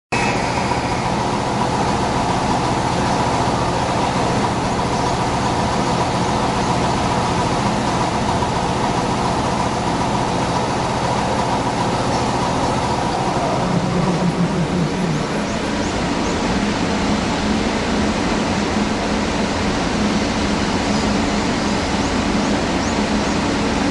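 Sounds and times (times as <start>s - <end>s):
steady tones: 0.1s - 23.1s
mechanical hum of trains: 0.1s - 23.9s
low tone: 11.4s - 17.1s.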